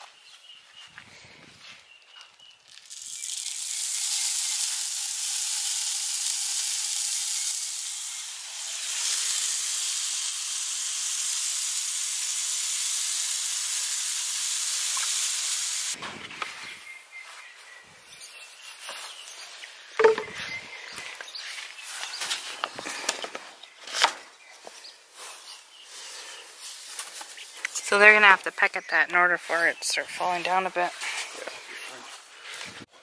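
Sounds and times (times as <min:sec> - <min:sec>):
grain pouring down a pipe: 0:02.7 - 0:16.0.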